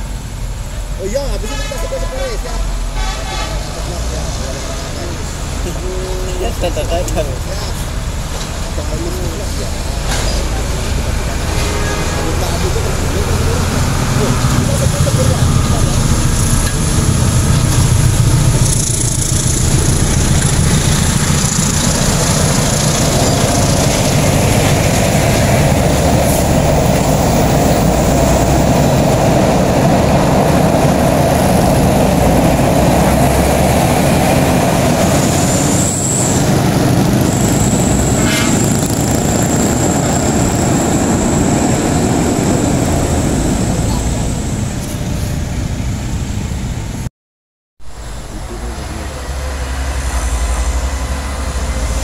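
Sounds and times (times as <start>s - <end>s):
trucks and motorcycles passing: 0.0s - 46.9s, 47.9s - 52.0s.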